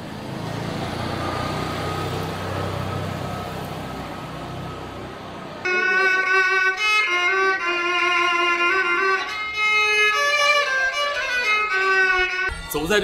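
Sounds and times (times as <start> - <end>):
low street hum: 0.0 - 13.0
bowed two-string fiddle tune: 5.6 - 13.0.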